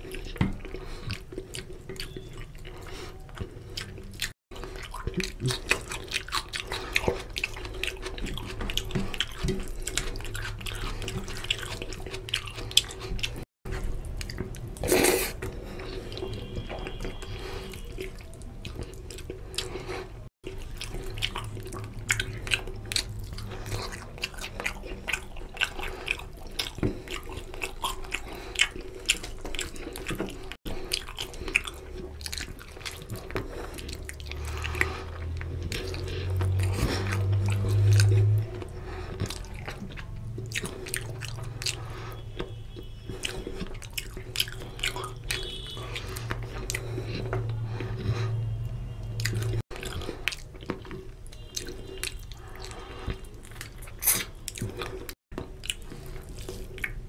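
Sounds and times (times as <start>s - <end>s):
chewing and lip-smacking: 0.0s - 57.0s.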